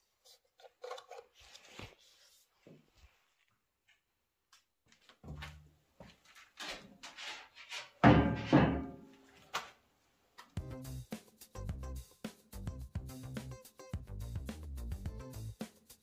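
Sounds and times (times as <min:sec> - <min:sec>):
background music: 0:10.6 - 0:16.0
steady beat: 0:10.6 - 0:16.0.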